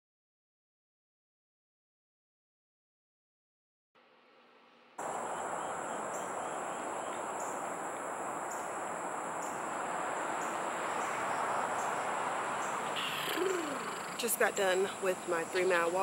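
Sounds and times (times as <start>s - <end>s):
insect chorus buzzing: 4.2s - 16.0s
broad rush of outdoor noise: 5.0s - 16.0s.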